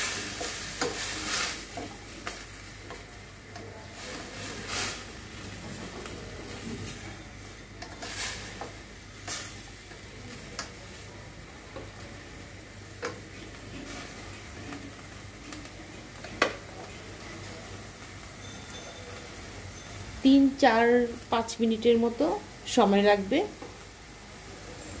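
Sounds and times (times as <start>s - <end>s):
spatula scraping vegetables in pot: 0.0s - 3.2s, 7.7s - 9.6s, 13.0s - 17.3s
vegetables sizzling: 0.0s - 25.0s.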